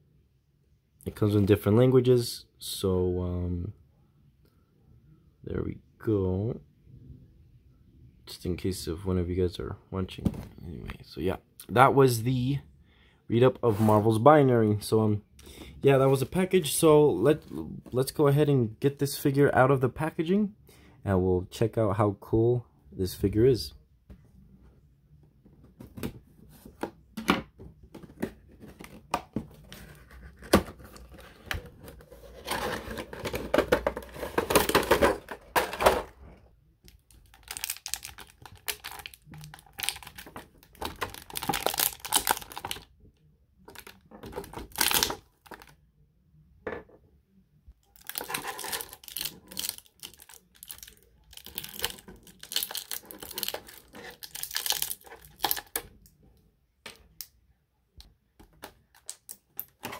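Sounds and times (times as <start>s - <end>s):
plastic bag crinkling and tearing: 37.1s - 42.8s, 48.0s - 55.8s.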